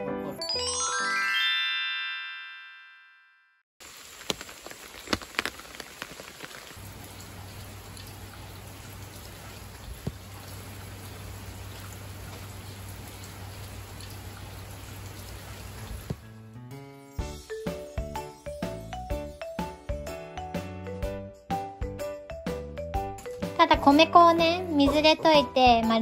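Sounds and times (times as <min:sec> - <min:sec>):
light tune: 0:00.3 - 0:03.2
sharp drips: 0:03.8 - 0:16.2
rain falling: 0:03.8 - 0:16.3.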